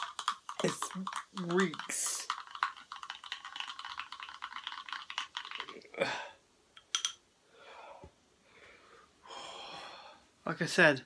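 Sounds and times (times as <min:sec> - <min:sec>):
person gulping a drink: 0:00.0 - 0:06.4
person breathing out: 0:05.9 - 0:06.4, 0:07.5 - 0:10.3.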